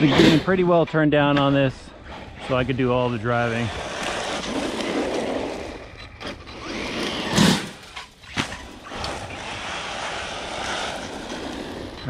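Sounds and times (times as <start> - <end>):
tyres scrabbling on gravel: 0.0 - 12.0
electric toy car motor: 3.6 - 12.0.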